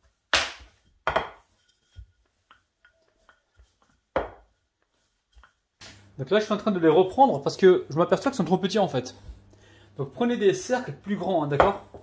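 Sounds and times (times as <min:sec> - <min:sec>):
rolling pin knocking on worktop: 0:01.0 - 0:01.4, 0:04.1 - 0:04.5, 0:11.6 - 0:12.0.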